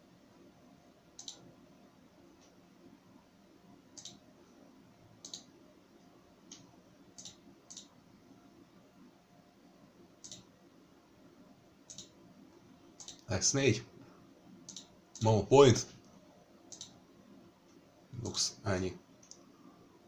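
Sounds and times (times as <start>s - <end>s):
faint low background hum: 0.0s - 20.0s
computer mouse button clicking: 1.2s - 1.4s, 4.0s - 4.2s, 5.2s - 5.5s, 7.2s - 7.9s, 10.2s - 10.5s, 14.7s - 15.3s.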